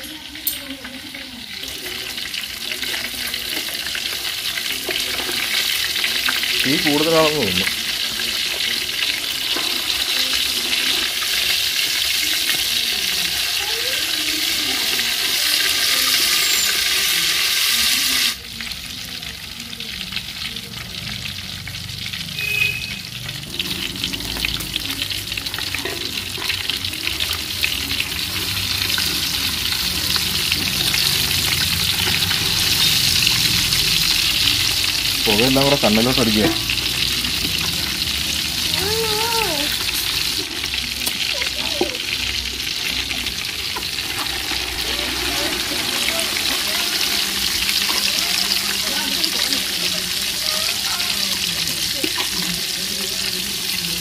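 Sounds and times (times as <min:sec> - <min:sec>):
fish sizzling in oil: 0:00.0 - 0:54.0.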